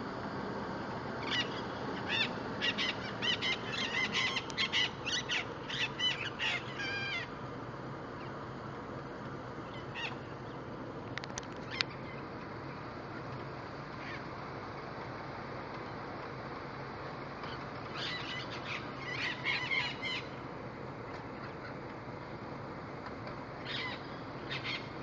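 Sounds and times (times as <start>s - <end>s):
parrots squawking: 1.2s - 7.4s, 9.7s - 10.3s, 17.5s - 20.4s, 23.6s - 25.0s.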